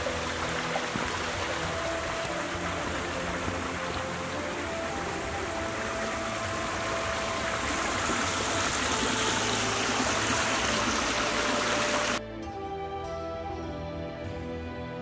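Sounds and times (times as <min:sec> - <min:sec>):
stream rushing over rocks: 0:00.0 - 0:12.2
soft background music: 0:00.0 - 0:15.0.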